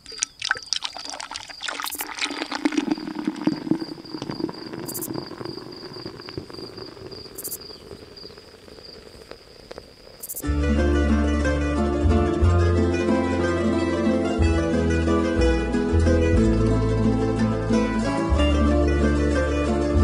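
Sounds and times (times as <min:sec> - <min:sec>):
water splashing and dripping: 0:00.0 - 0:10.4
cricket trilling: 0:00.0 - 0:10.6.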